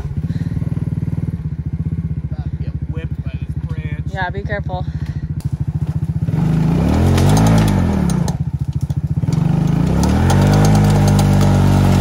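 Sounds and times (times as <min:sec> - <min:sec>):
atv engine idling and revving: 0:00.0 - 0:12.0.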